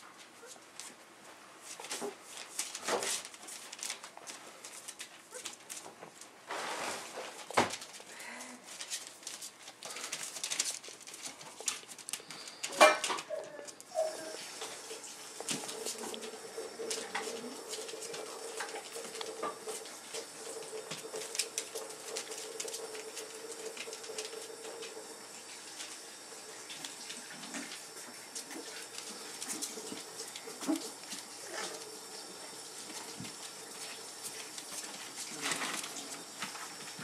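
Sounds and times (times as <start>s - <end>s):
puppies scuffling on bedding: 0.1s - 37.0s
puppies whimpering and squeaking: 12.2s - 14.5s.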